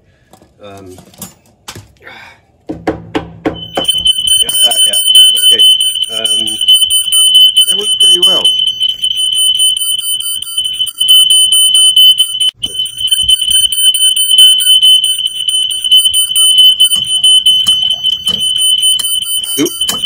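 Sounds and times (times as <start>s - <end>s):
smoke alarm shrill tone: 3.6s - 20.0s.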